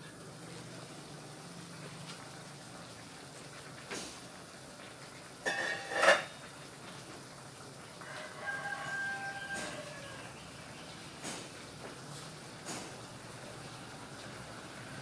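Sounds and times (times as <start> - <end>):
rooster crowing: 8.0 - 10.4.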